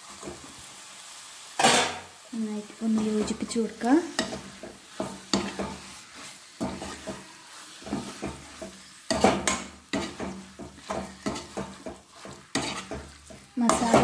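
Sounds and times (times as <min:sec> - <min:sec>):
frying sizzle: 0:00.0 - 0:14.0
metal spoon scraping a metal pan: 0:02.9 - 0:14.0.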